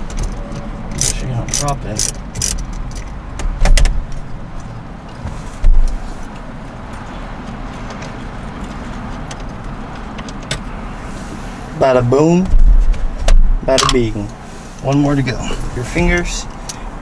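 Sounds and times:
ratchet wrench clicking: 0:00.9 - 0:03.2.

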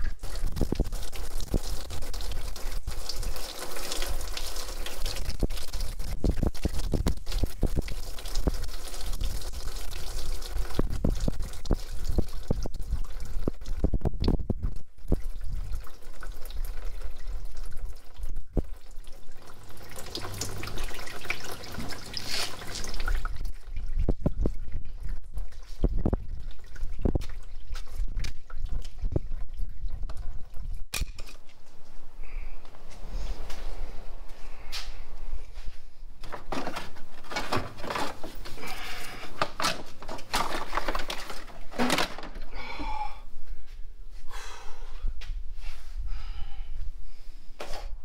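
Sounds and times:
coolant pouring and dripping: 0:00.0 - 0:30.9, 0:36.2 - 0:42.7.

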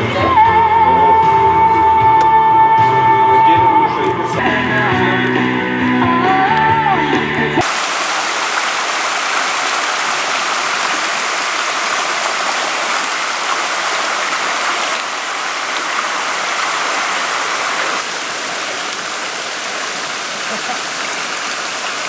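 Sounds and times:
rushing water: 0:07.6 - 0:22.0.

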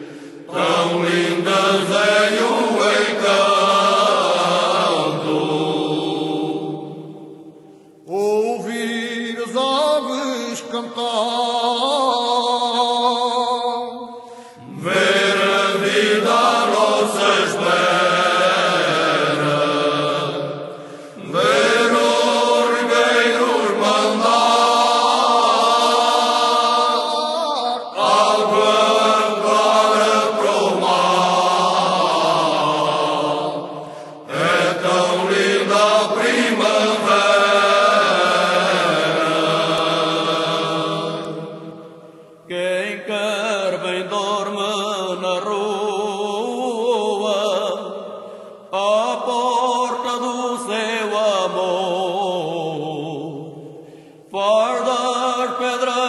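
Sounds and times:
choir singing unaccompanied: 0:00.0 - 0:09.8, 0:14.6 - 0:42.7.

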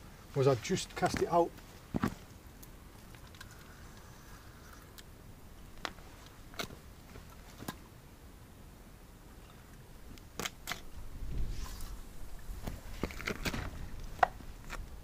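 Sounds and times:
background hiss: 0:00.0 - 0:15.0
fishing rod clicks and knocks: 0:10.2 - 0:10.9.

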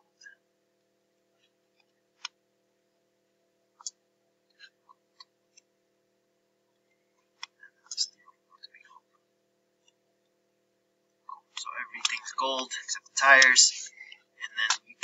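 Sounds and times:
faint steady hum: 0:00.0 - 0:15.0
computer mouse clicking: 0:03.8 - 0:05.7.

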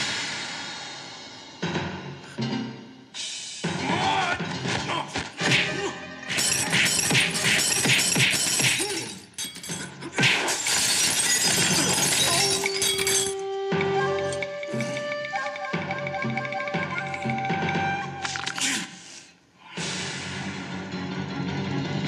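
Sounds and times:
dramatic film score: 0:00.0 - 0:08.2
glass shattering: 0:06.3 - 0:13.4.

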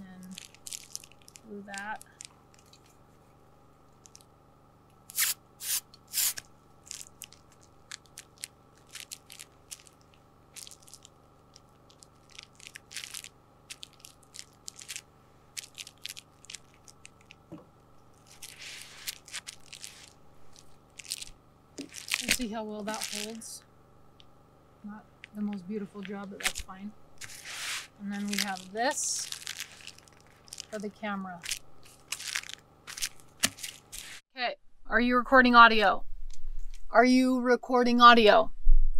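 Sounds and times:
foil insulation crinkling: 0:00.1 - 0:03.1, 0:03.9 - 0:04.3, 0:05.1 - 0:23.6, 0:25.1 - 0:34.2
aerosol can spraying: 0:05.1 - 0:06.4
rustling hiss: 0:27.2 - 0:30.4.

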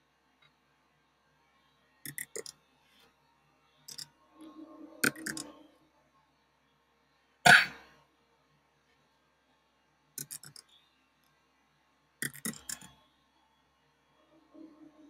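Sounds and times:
computer input clicks: 0:02.1 - 0:02.5, 0:05.0 - 0:05.5, 0:10.2 - 0:10.6, 0:12.2 - 0:12.9
person coughing: 0:07.5 - 0:07.8.

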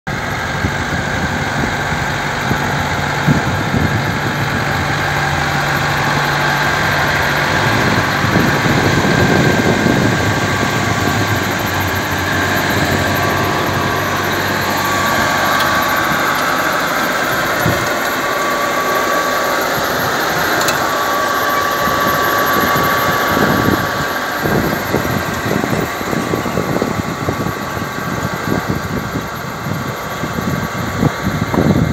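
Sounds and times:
gusty low rumbling: 0:00.1 - 0:31.9
high whine: 0:00.1 - 0:31.9
tractor engine running: 0:00.1 - 0:31.9.

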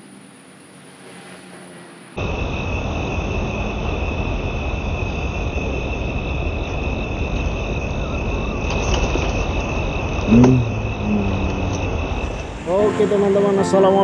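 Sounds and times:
insects chirring: 0:00.0 - 0:14.0
low rumble: 0:02.2 - 0:13.3.

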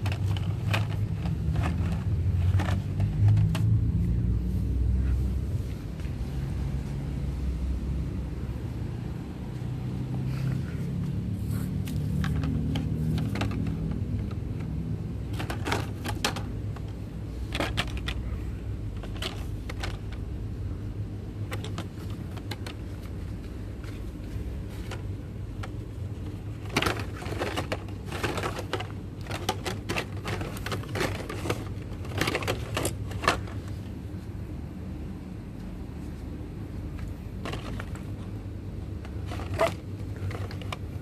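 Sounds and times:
steady low rumble: 0:00.0 - 0:41.0
plastic blister packs clicking: 0:26.5 - 0:33.6.

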